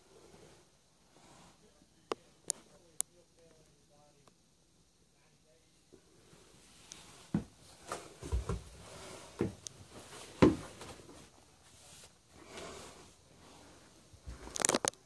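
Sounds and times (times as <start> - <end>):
rustling: 6.4 - 15.0
dull thumps on wooden floor: 7.3 - 8.8, 9.4 - 9.6, 10.3 - 11.0.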